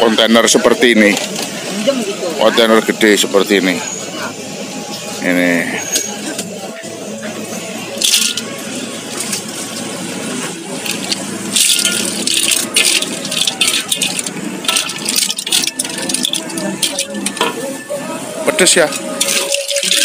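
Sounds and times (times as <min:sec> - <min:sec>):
mussel shells clattering in a wok: 0:08.0 - 0:08.6, 0:10.8 - 0:17.6, 0:18.9 - 0:20.0.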